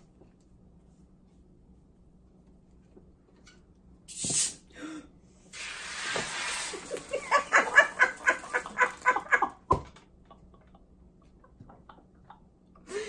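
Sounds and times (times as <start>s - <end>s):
soda fizzing and spraying: 4.1s - 4.6s, 5.5s - 8.5s
person laughing hard: 6.8s - 13.0s.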